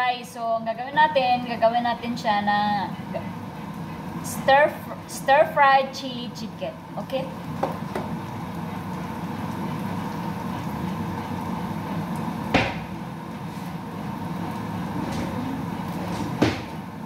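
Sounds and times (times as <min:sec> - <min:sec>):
onion and garlic sizzling in pan: 0:02.0 - 0:17.0
utensil knocking on pan: 0:12.6 - 0:12.9.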